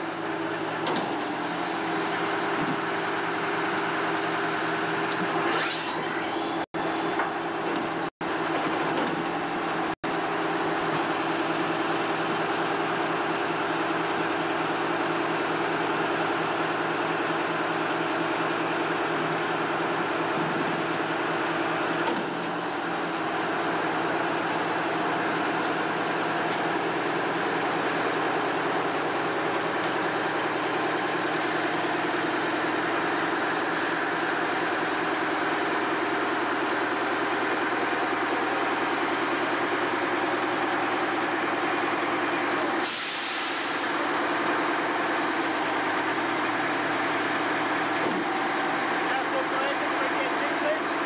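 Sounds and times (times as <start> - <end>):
heavy engine running: 0.0 - 51.0
air release hiss: 42.8 - 44.0.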